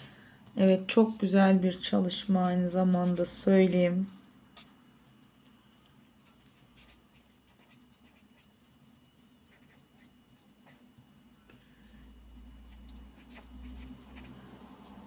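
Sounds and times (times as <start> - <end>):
pen scratching on paper: 6.2 - 11.0, 12.7 - 15.0.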